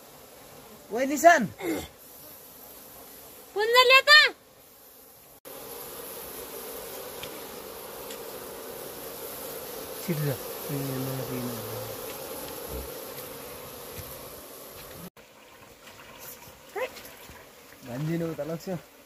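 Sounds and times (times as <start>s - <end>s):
insect buzzing: 0.0s - 19.0s.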